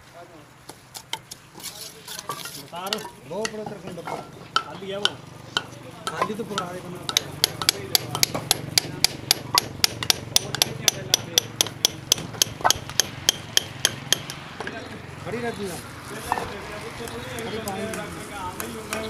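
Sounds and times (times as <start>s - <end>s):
sharp taps of trowel on bricks: 0.6s - 14.8s, 17.4s - 19.0s
mortar scraping against brick: 0.7s - 4.6s.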